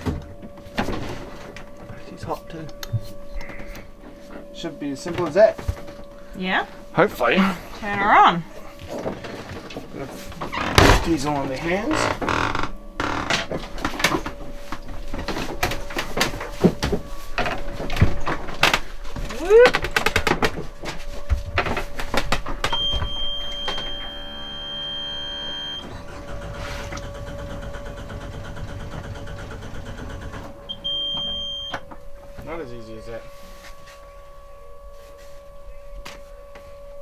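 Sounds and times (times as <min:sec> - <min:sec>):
alarm buzzer beep: 0:22.6 - 0:25.9, 0:30.6 - 0:31.9
diesel engine cranking: 0:23.8 - 0:31.4.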